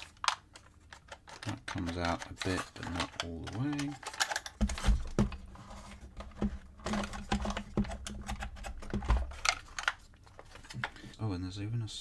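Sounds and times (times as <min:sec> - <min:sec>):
wooden puzzle box clicks and rattles: 0:00.0 - 0:05.4, 0:06.2 - 0:11.0.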